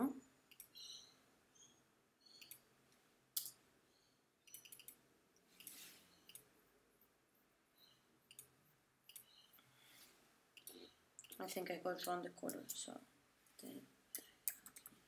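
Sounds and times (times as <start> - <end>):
computer mouse clicks: 0.5 - 0.9, 2.3 - 2.6, 4.5 - 5.0, 5.6 - 6.5, 8.3 - 8.5, 9.1 - 9.4, 13.6 - 15.0.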